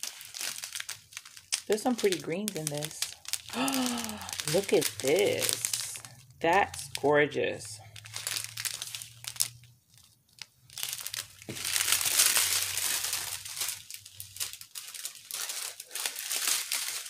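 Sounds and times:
plastic bags crinkling: 0:00.0 - 0:17.0.

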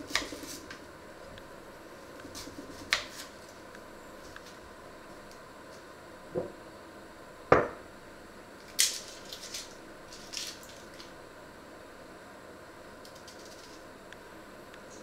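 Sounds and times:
dry onion skin crackling: 0:02.0 - 0:04.6, 0:08.6 - 0:11.2, 0:13.0 - 0:13.9.

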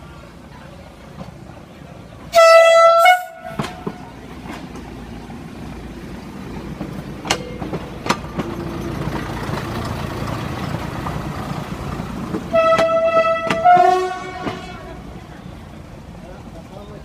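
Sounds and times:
railcar engine rumbling: 0:00.0 - 0:17.0
train horn blasts: 0:02.3 - 0:04.0, 0:12.5 - 0:15.2.

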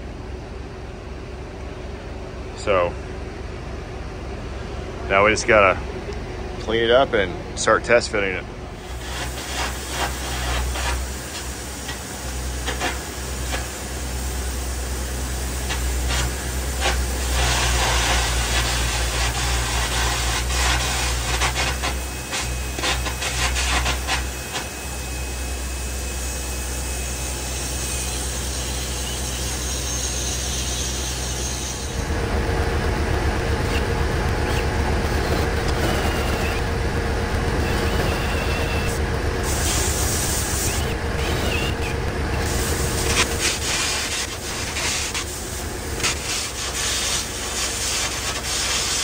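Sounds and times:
low hum: 0:00.0 - 0:47.6
metal cutting hiss with crackles: 0:08.8 - 0:32.0, 0:37.7 - 0:41.7, 0:42.4 - 0:49.0.

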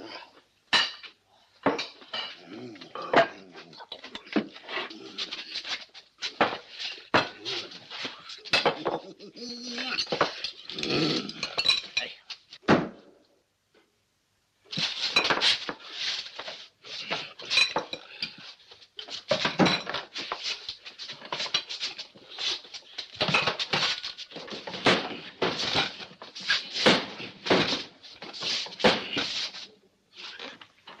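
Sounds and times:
crockery and cutlery clattering: 0:00.8 - 0:02.4, 0:06.3 - 0:09.1, 0:09.8 - 0:12.1, 0:17.1 - 0:29.4.

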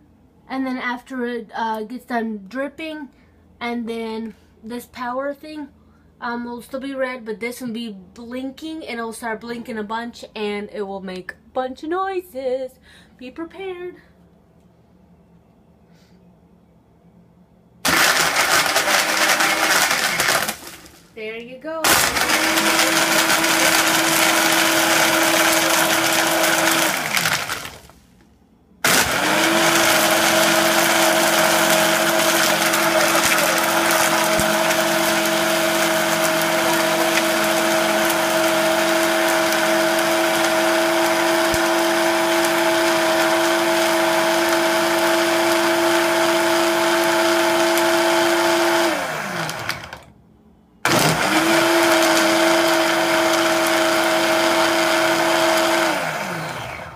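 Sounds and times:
blender motor whine: 0:17.8 - 0:20.9, 0:21.8 - 0:27.9, 0:28.8 - 0:50.0, 0:50.9 - 0:56.9.

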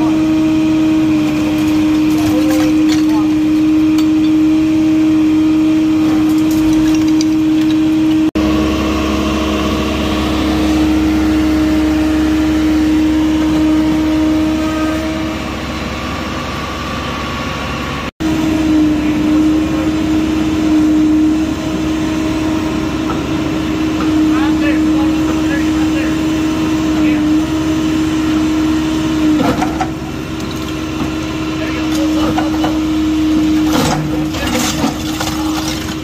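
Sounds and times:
diesel engine running under load: 0:00.0 - 0:36.0
constant droning tone: 0:18.3 - 0:36.0.

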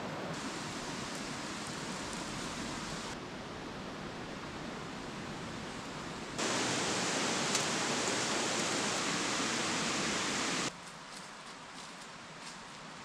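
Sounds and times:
river rushing over rocks: 0:06.4 - 0:10.7.

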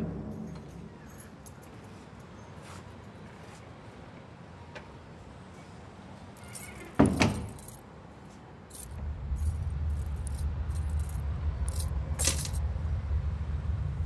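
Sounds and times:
high metallic rattles: 0:00.0 - 0:01.9, 0:06.4 - 0:07.8, 0:08.7 - 0:12.6
low steady drone: 0:08.8 - 0:14.0.

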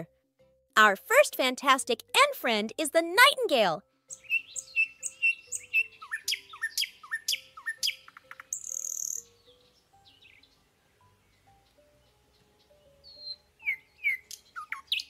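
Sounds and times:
soft background music: 0:00.0 - 0:15.0
nightingale singing: 0:04.1 - 0:15.0.

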